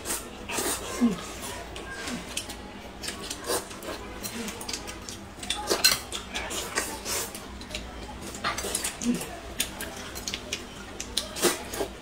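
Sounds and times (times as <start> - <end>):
noodles being slurped: 0.0 - 7.6, 8.4 - 12.0
chopsticks clicking on plates: 4.2 - 11.8.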